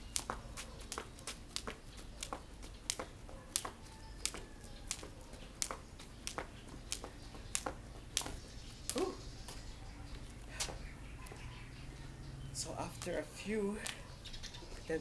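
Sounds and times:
jump rope slapping concrete: 0.0s - 9.2s.

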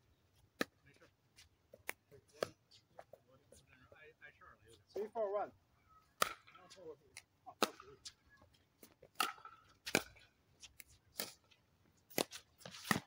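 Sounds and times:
paddles hitting plastic ball: 8.8s - 11.4s.

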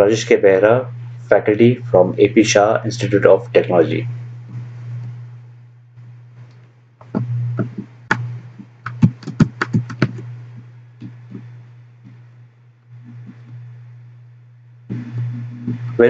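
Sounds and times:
steady low hum: 0.0s - 16.0s
sharp clicks and taps: 7.0s - 10.3s.

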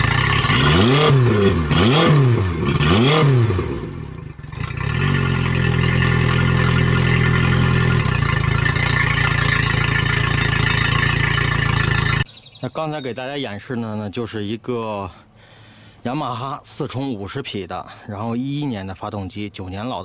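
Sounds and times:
outboard engine idling and revving: 0.0s - 12.3s.

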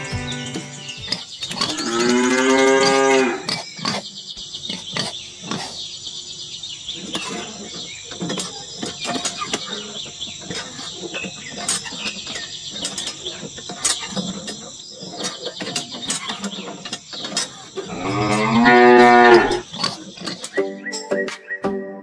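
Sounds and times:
crickets: 0.0s - 21.6s
birds chirping: 0.0s - 22.0s
cow mooing: 1.7s - 3.5s, 17.9s - 19.6s.

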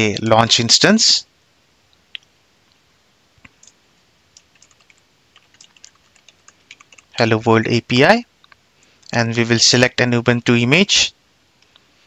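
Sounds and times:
typing on computer keyboard: 4.4s - 7.2s.

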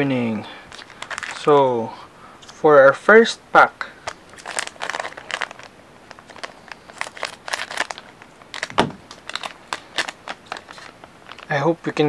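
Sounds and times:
foil pack crinkling: 0.7s - 1.6s, 4.0s - 12.0s
loud thump: 8.7s - 9.1s.

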